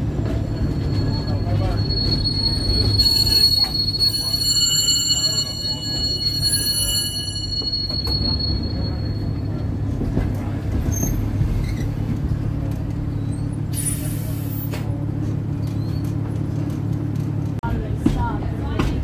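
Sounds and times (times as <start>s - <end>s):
high wheel squeal: 0.0s - 10.0s, 10.8s - 12.0s, 13.1s - 14.8s
trolley rumbling on rails: 0.0s - 19.0s.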